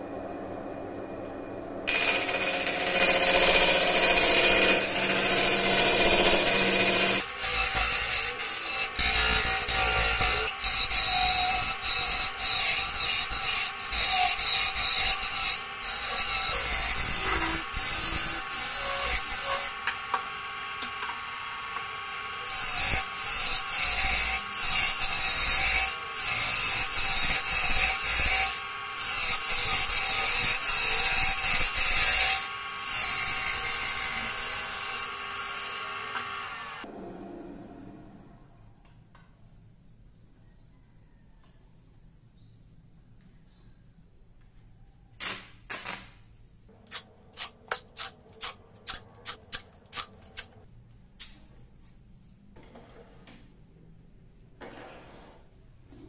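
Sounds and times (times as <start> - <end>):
turning tool scraping wood: 46.7 - 50.6.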